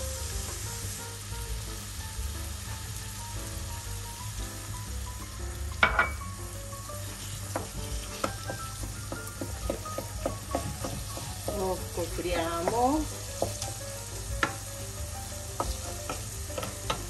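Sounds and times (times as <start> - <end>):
filling sizzling in frying pan: 0.0 - 17.0
spoon knocking against pan: 7.5 - 11.8, 12.6 - 13.6, 15.6 - 17.0.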